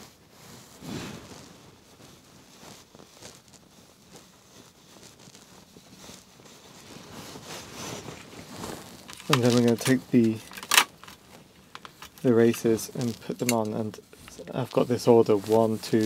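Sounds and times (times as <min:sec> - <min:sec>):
clothing rustle: 0:00.0 - 0:16.0
hands handling metal tube: 0:07.4 - 0:16.0.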